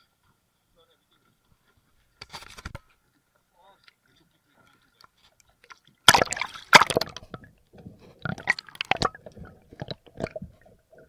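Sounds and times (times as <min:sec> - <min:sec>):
water bubbling and sloshing underwater: 0:03.0 - 0:11.0.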